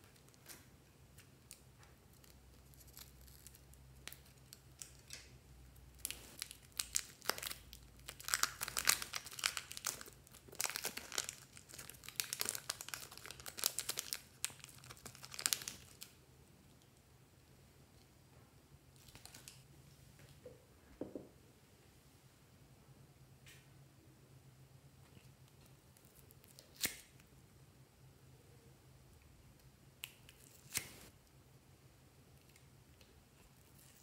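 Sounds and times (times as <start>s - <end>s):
plastic wrapper crinkling: 6.0s - 16.2s, 19.0s - 19.6s.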